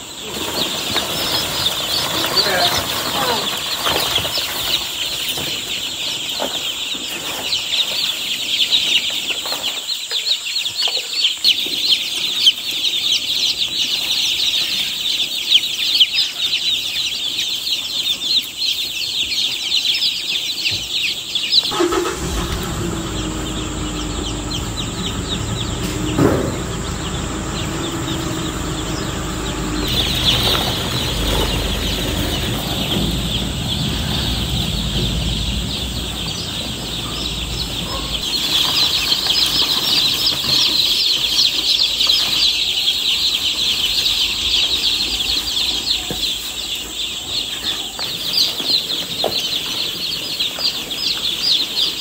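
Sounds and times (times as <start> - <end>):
chicks peeping: 0.0 - 52.0
low hum and rumble: 22.1 - 39.4.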